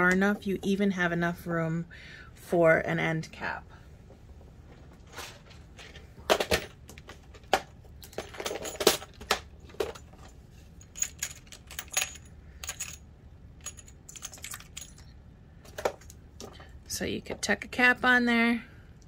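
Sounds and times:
small metal clinks: 0:09.9 - 0:15.2.

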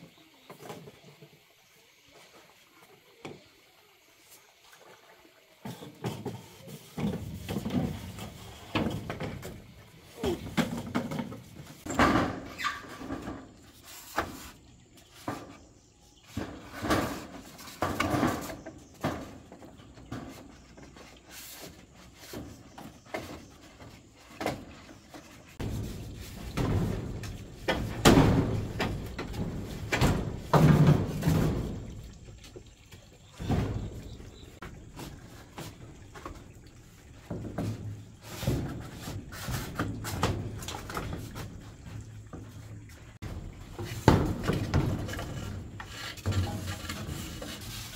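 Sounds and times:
objects knocking and clattering: 0:05.6 - 0:14.5, 0:15.1 - 0:21.2, 0:22.3 - 0:47.9.

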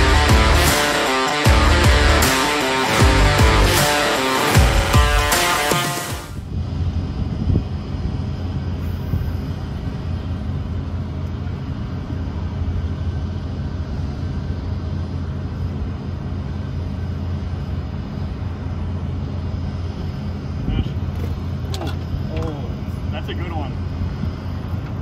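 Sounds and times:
boat motor running: 0:00.0 - 0:06.2.

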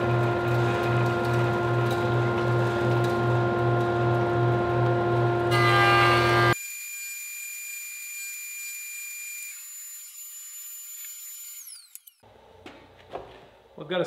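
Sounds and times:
woodworking machines whining: 0:00.0 - 0:12.2.

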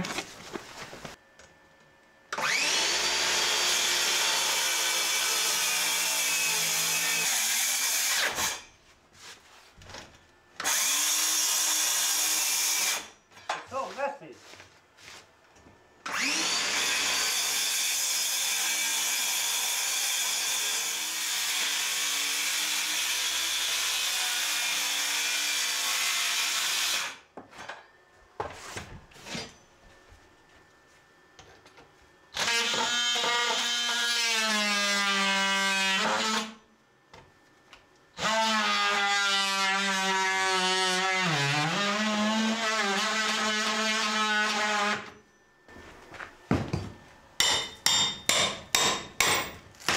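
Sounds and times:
power tool cutting plywood: 0:02.3 - 0:08.7, 0:10.6 - 0:13.1, 0:16.0 - 0:27.2, 0:32.3 - 0:36.6, 0:38.2 - 0:45.2.

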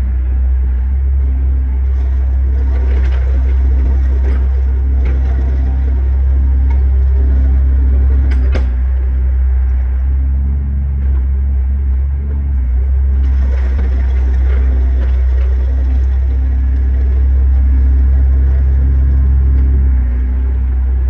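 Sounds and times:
loader engine droning: 0:00.0 - 0:21.0
rake scraping over gravel: 0:01.8 - 0:08.6.

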